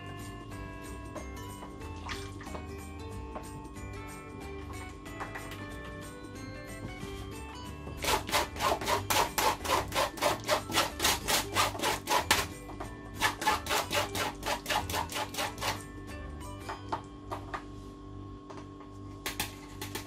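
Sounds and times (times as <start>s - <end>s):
soft background music: 0.0s - 20.0s
pulp rubbed against mesh sieve: 8.0s - 12.5s, 13.2s - 15.8s.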